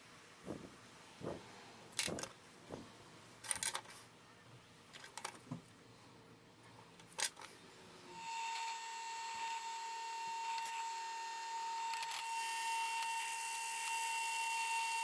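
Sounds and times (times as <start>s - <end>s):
power tool motor whining: 8.1s - 15.0s.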